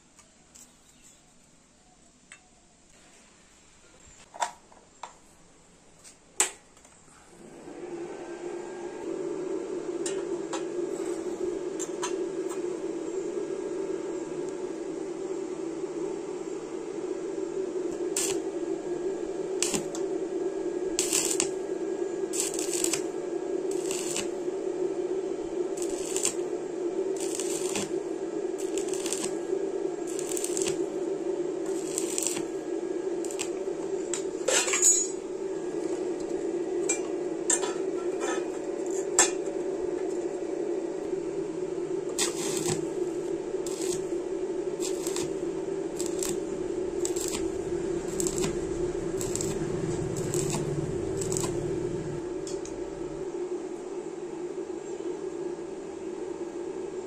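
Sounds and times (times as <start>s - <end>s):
steady hum: 0.0s - 57.0s
welding arc crackle: 17.9s - 20.1s, 20.8s - 34.5s, 42.0s - 53.2s.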